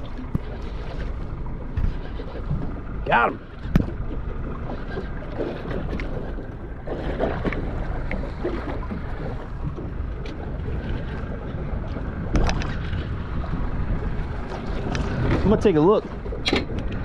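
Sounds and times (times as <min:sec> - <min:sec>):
water slapping boat hull: 0:00.0 - 0:17.0
wind buffeting microphone: 0:00.0 - 0:17.0.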